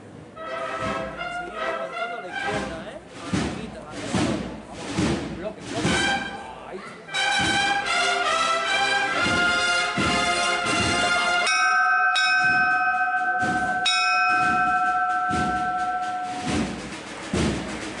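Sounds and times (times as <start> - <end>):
cornet and drum band playing: 0.0 - 18.0
bell ringing: 11.4 - 17.1.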